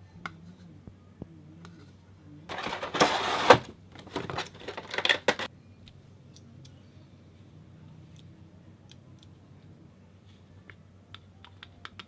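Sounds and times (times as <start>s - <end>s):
packaging rustling and scraping: 2.5s - 5.5s.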